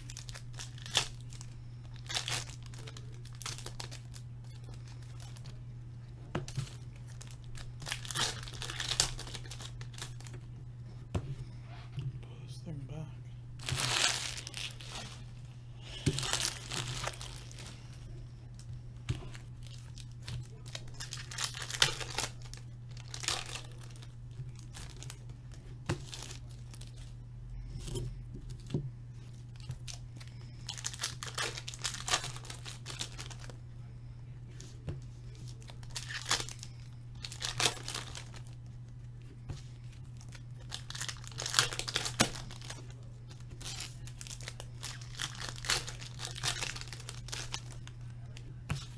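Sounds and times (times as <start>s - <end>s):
card packs tearing open: 0.0s - 5.6s, 6.5s - 10.4s, 13.6s - 15.2s, 15.9s - 17.8s, 19.2s - 25.3s, 25.9s - 27.1s, 29.6s - 33.6s, 35.5s - 38.6s, 40.2s - 48.9s
foil wrappers crinkling: 0.0s - 5.6s, 6.4s - 10.6s, 13.6s - 33.6s, 34.5s - 48.9s
steady low hum: 0.0s - 48.9s.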